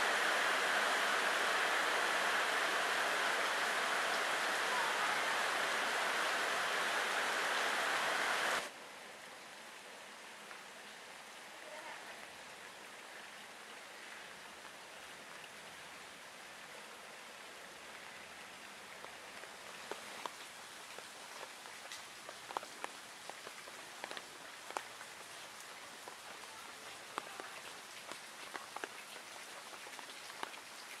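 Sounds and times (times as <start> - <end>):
rain on leaves and puddle: 0.0 - 31.0.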